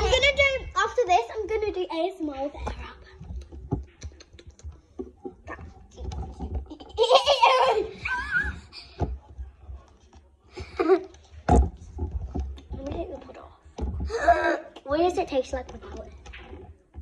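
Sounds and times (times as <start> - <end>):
girl laughing loudly: 6.8 - 8.7.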